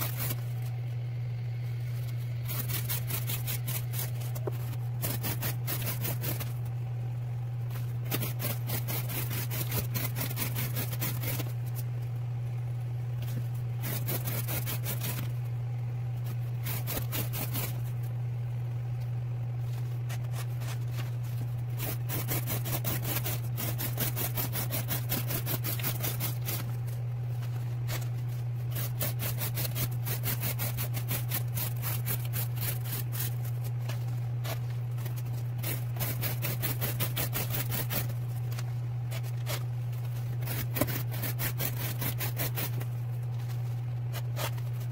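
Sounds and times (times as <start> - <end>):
knife slicing cardboard: 0.0 - 0.6, 2.4 - 6.6, 7.8 - 11.6, 13.3 - 15.3, 16.3 - 17.8, 20.0 - 26.8, 27.7 - 38.2, 40.3 - 44.9
steady low hum: 0.0 - 44.9.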